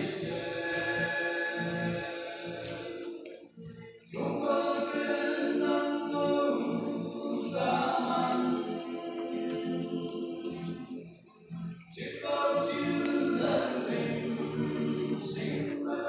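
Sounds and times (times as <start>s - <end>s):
men singing in harmony: 0.0s - 16.0s.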